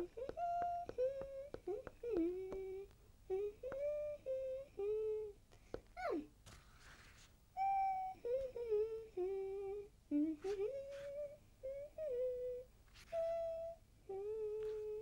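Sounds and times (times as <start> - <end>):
light taps: 0.0 - 3.0
person humming a tune: 0.0 - 6.2, 7.6 - 15.0.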